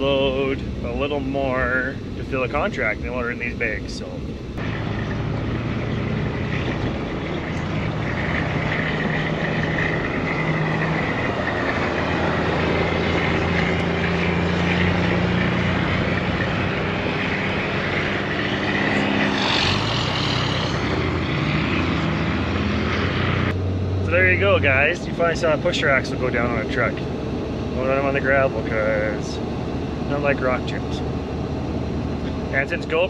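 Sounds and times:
truck engine hum: 0.0 - 33.0
tyre and road noise: 0.0 - 33.0.

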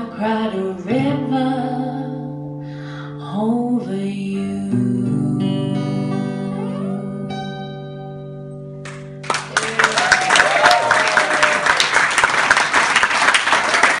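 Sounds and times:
audience applause: 8.9 - 14.0.

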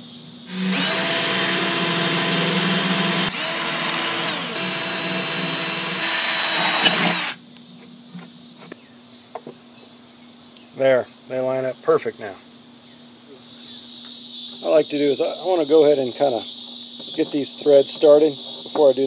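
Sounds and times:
cordless drill drilling into metal: 0.5 - 7.4.

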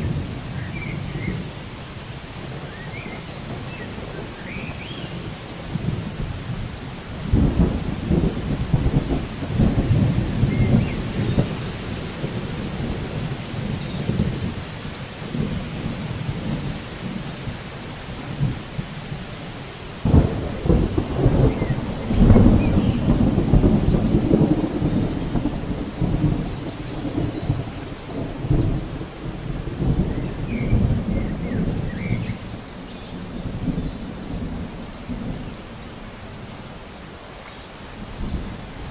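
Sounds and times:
heavy rain on foliage: 0.0 - 38.9
rolling thunder: 2.3 - 36.2
sharp thunder crack: 20.0 - 32.4.

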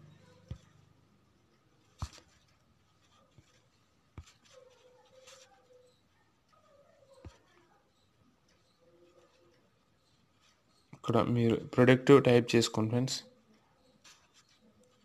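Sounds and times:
fingers tapping touchscreen: 1.8 - 11.0.

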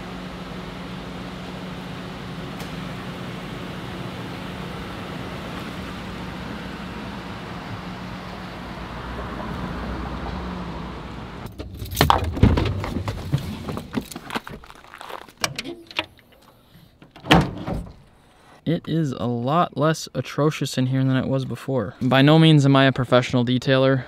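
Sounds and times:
pickup truck engine rolling past: 0.0 - 12.1
flip-flop footsteps on gravel: 12.6 - 15.4.

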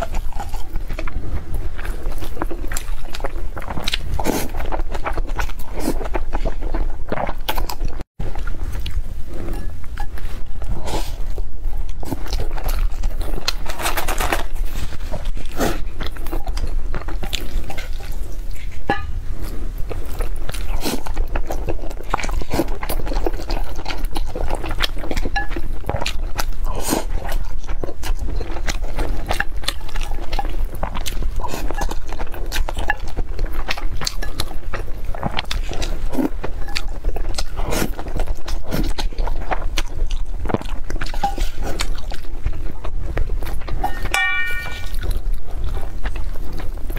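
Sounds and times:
chewing and mouth noises: 0.0 - 46.9
steady low hum: 0.0 - 46.9.

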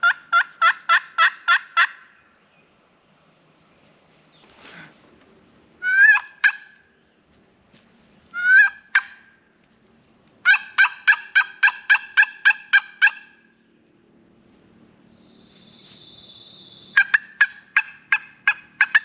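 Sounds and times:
turkey call yelps: 0.0 - 2.1, 5.8 - 6.8, 8.4 - 9.3, 10.4 - 13.4, 16.7 - 19.0.

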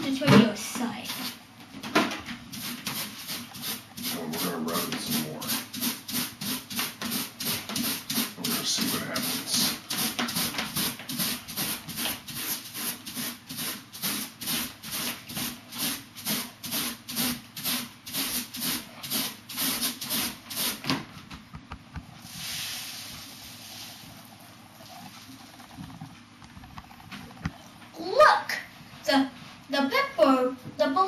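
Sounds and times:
balloon rubbing on hair: 2.5 - 20.8.

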